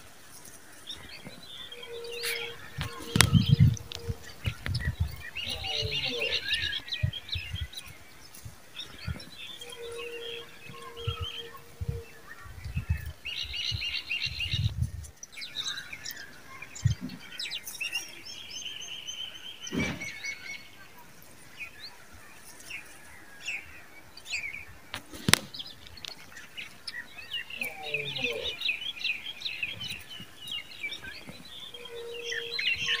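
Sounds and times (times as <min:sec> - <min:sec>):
songbirds chirping and twittering: 0:00.0 - 0:33.0.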